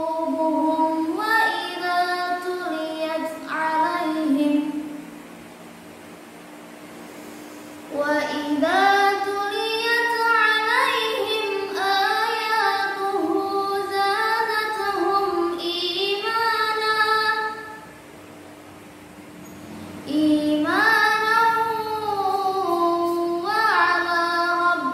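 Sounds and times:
girl chanting melodically: 0.0s - 5.0s, 7.9s - 17.8s, 20.1s - 24.9s.

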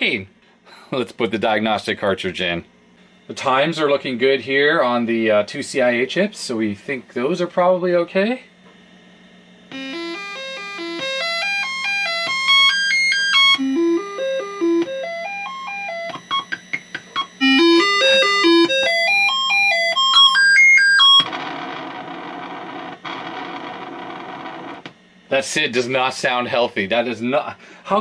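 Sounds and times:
steady low hum: 0.0s - 28.0s
stepped electronic notes: 9.7s - 24.8s.

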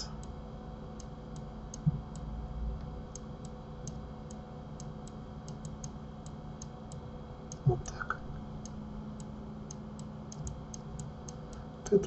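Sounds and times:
soft low thump: 1.8s - 2.1s
computer mouse clicks: 3.1s - 8.0s, 8.6s - 11.6s.

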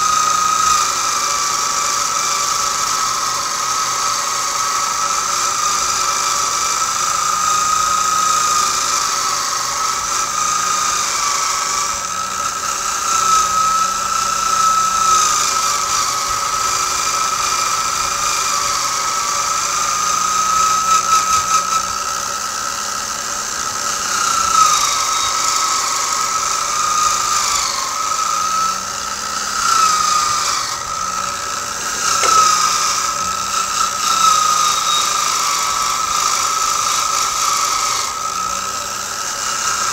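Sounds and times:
wire wheel whining: 0.0s - 39.9s.

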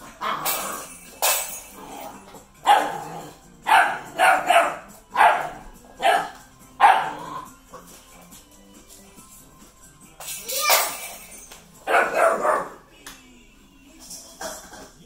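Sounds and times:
puppy yapping: 3.7s - 7.2s, 11.9s - 12.8s.

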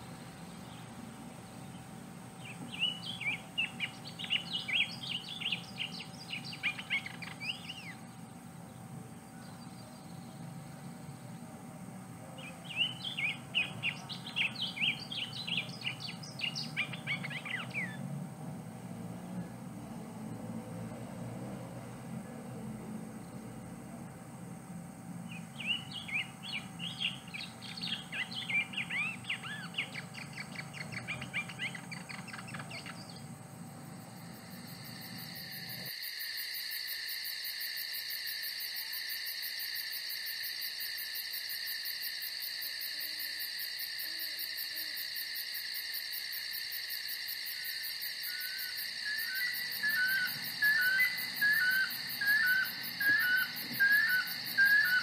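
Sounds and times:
small birds chirping: 0.0s - 11.6s, 12.3s - 18.1s, 25.2s - 35.9s, 48.2s - 55.0s
high insect trill: 0.0s - 55.0s.

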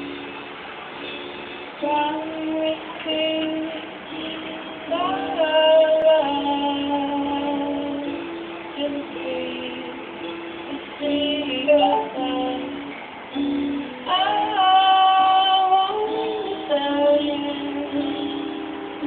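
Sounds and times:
song with high singing voice: 0.0s - 19.0s.

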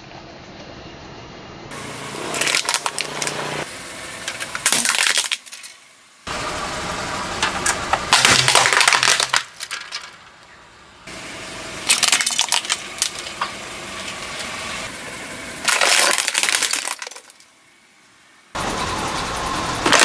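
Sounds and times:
tyres crushing brittle objects: 1.7s - 3.6s, 4.2s - 5.9s, 7.4s - 10.6s, 11.8s - 14.6s, 15.6s - 17.6s.

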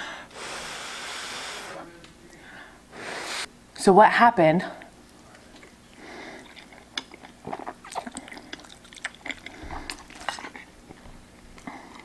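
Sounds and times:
wet chewing: 5.4s - 12.0s
noodle slurping: 6.0s - 10.7s.

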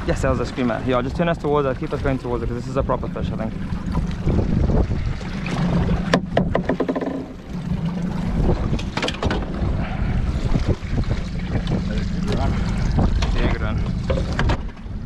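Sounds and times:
outboard motors humming: 0.0s - 15.0s
wind buffeting microphone: 0.0s - 15.0s
sharp knocks: 6.0s - 7.4s.

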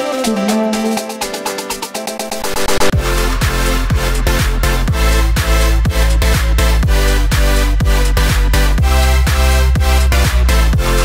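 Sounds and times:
electronic dance music: 0.0s - 11.0s
thumping beat: 0.0s - 11.0s.

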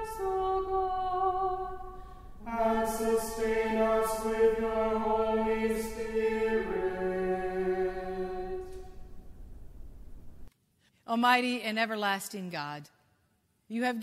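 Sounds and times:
person singing a sacred chant: 0.0s - 8.9s.

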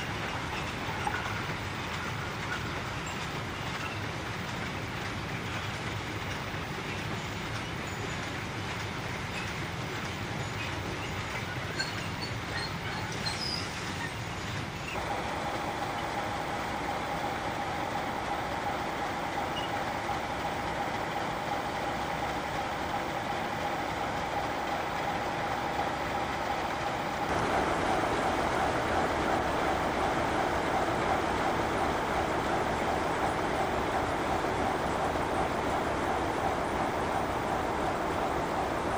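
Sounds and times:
diesel locomotive engine drone: 0.0s - 38.9s
constant whine: 15.0s - 38.9s.

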